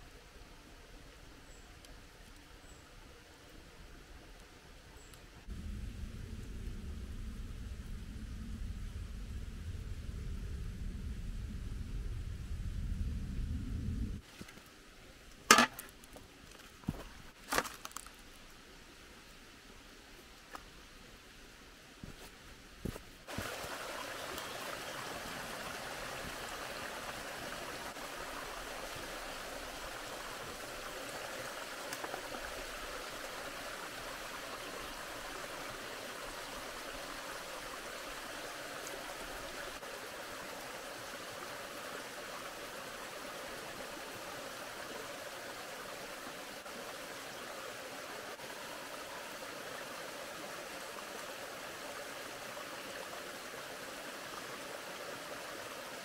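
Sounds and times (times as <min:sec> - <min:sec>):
stream rushing over rocks: 0:22.0 - 0:56.0.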